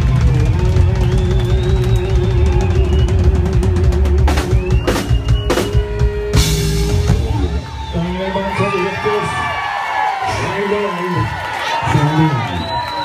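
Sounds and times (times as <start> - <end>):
drum and cymbal accents: 0.0 - 8.0
live rock band playing: 0.0 - 9.4.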